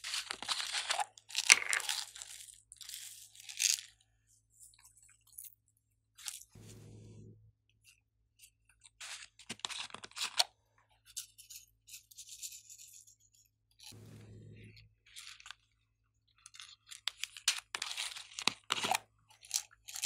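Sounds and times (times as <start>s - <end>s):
crinkling and crackling: 0.0s - 5.6s
short low hum: 6.6s - 7.5s, 14.0s - 15.0s.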